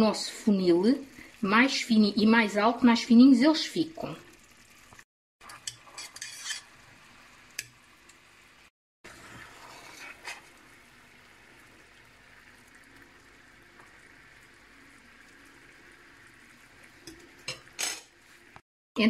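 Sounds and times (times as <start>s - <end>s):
syrup bubbling in a pan: 0.0s - 18.6s
metal utensils clinking: 17.0s - 18.1s.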